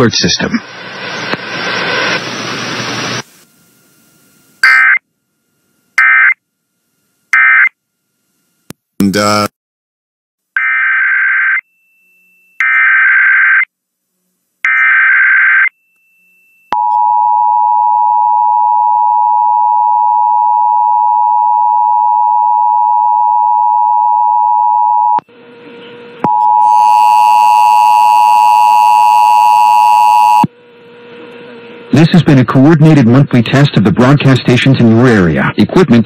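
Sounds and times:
two-tone attention signal: 4.6s - 5.0s.

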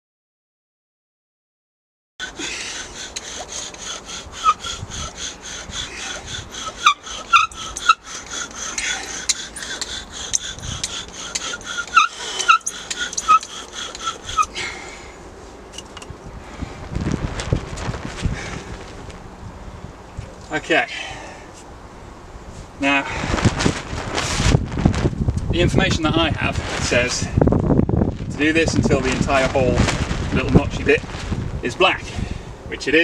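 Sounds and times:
bow drill rubbing wood: 2.2s - 14.6s.

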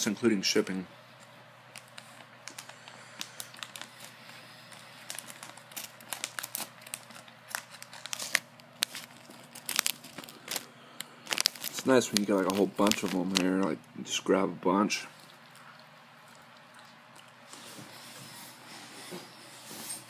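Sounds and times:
plastic bag crinkling: 1.7s - 13.8s.

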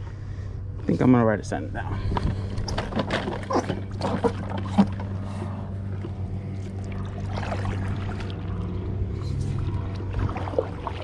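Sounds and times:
steady low hum: 0.0s - 11.0s
water splashes: 5.9s - 11.0s.

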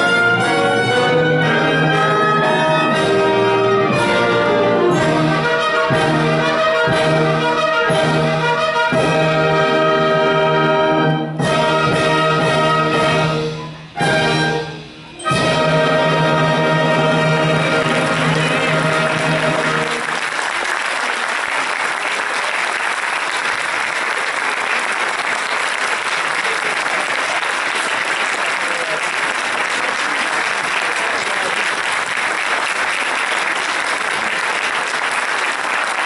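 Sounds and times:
wind band brass chord: 0.0s - 20.2s
audience applauding: 17.5s - 36.0s.

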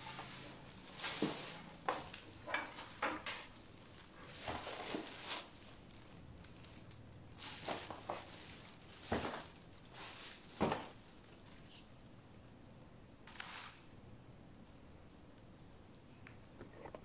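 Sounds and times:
plastic wrap crinkling: 0.0s - 11.9s, 13.2s - 13.9s.

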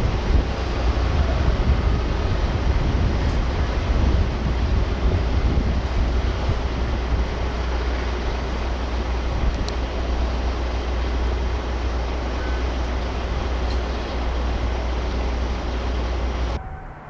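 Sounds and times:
outdoor background hiss: 0.0s - 17.0s
steady low rumble: 0.0s - 17.0s
faint high tone: 16.6s - 17.0s.

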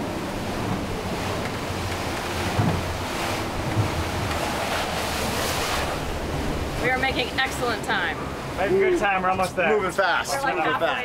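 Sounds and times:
wind rushing over microphone: 0.0s - 8.5s
outboard motors droning: 0.0s - 11.0s
water rushing past hull: 0.0s - 11.0s
hull thumps: 1.4s - 4.5s.

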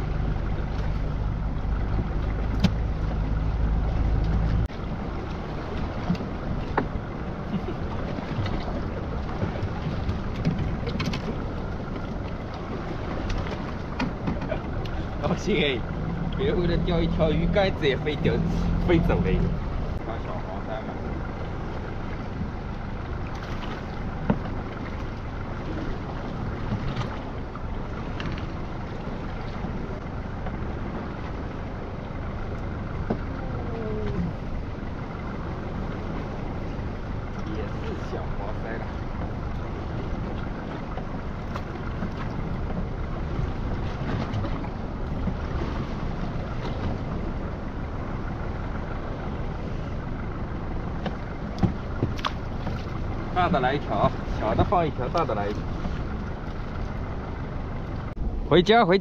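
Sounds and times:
sea washing around boat: 0.0s - 59.0s
wind rumble on microphone: 0.0s - 59.0s.

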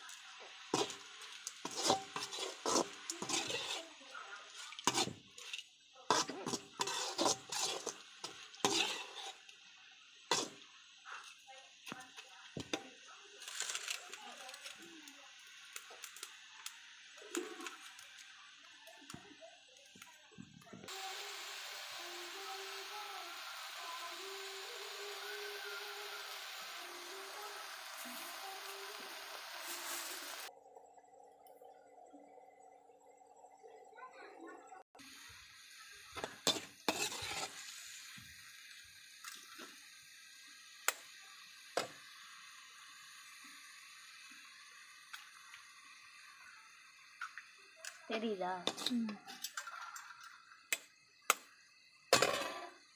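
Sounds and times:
greens sizzling in a pan: 0.0s - 30.5s, 34.8s - 52.9s
spatula stirring: 0.7s - 9.6s, 10.2s - 10.6s, 36.2s - 37.7s.

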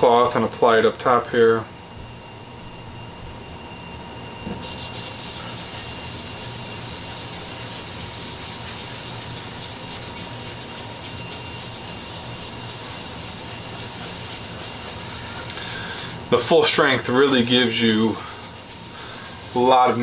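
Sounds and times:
wet rag rubbing on wood: 4.5s - 16.2s, 17.0s - 20.0s.

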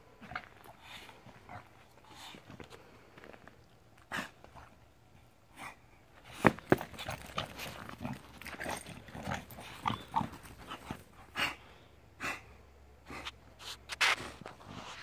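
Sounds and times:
dog snorting and sniffing: 4.0s - 4.8s, 5.5s - 15.0s.

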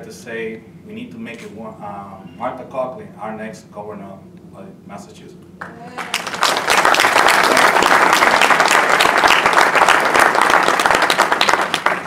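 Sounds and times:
audience clapping: 5.6s - 12.0s.

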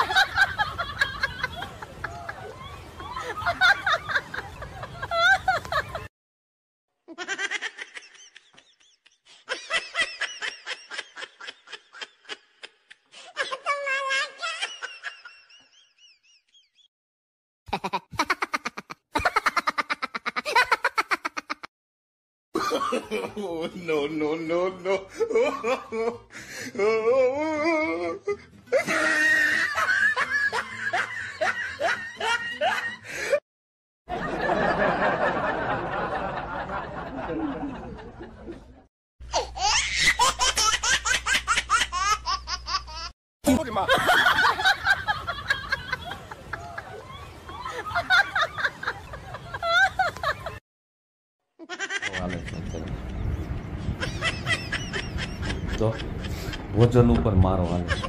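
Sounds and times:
person giggling: 17.7s - 21.7s, 51.6s - 53.0s
person laughing: 17.7s - 21.7s, 24.8s - 33.4s, 51.6s - 53.2s, 53.9s - 58.0s.

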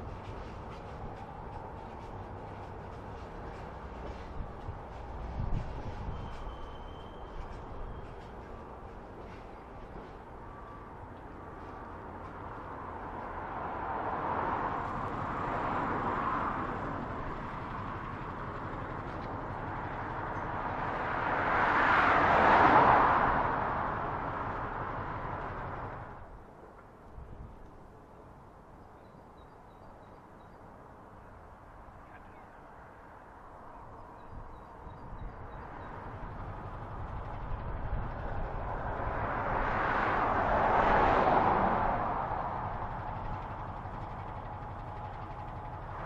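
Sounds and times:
steady traffic hum: 0.0s - 46.0s
vehicle passing close by: 12.3s - 26.2s, 35.6s - 46.0s.

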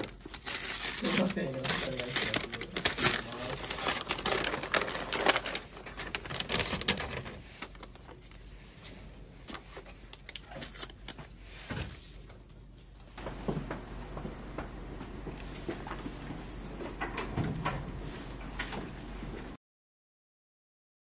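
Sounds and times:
paper crinkling and rustling: 0.0s - 13.3s.

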